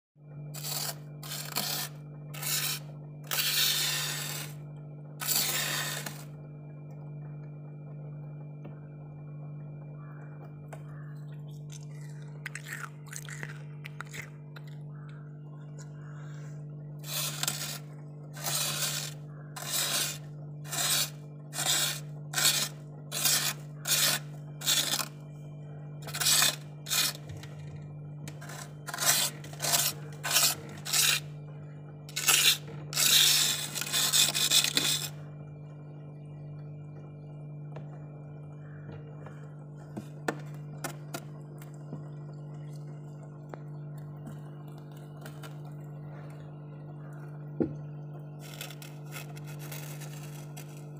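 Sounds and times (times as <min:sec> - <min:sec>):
steady low hum: 0:00.2 - 0:50.9
plastic spoon scraping frost: 0:00.6 - 0:04.6, 0:05.2 - 0:06.3, 0:11.5 - 0:14.8, 0:17.0 - 0:25.2, 0:26.0 - 0:31.3, 0:32.1 - 0:35.2, 0:48.4 - 0:50.9.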